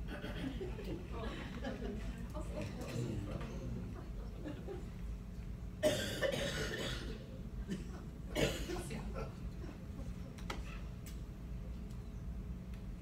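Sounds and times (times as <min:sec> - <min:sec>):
person coughing: 0:05.8 - 0:08.8.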